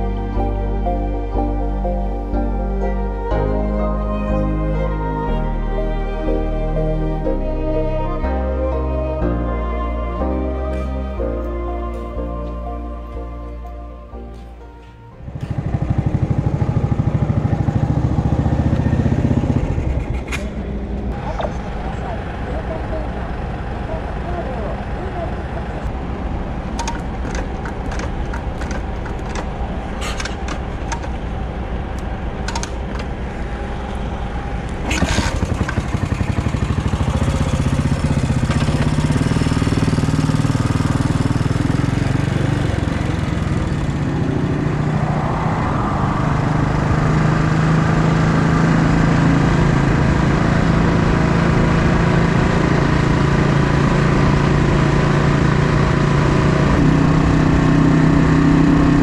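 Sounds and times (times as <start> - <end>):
motorcycle engine running: 15.2 - 31.4, 32.6 - 59.0.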